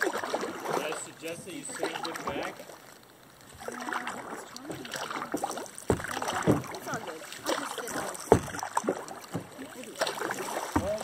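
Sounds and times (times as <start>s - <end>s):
splashy paddle strokes: 0.0s - 11.0s
knocks on kayak hull: 5.8s - 7.1s, 8.2s - 9.6s, 10.6s - 11.0s.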